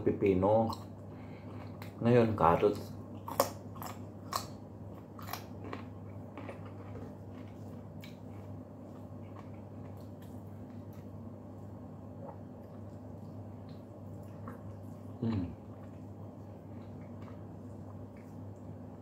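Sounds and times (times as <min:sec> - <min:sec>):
steady low hum: 0:00.0 - 0:19.0
carrot crunching: 0:03.2 - 0:11.1.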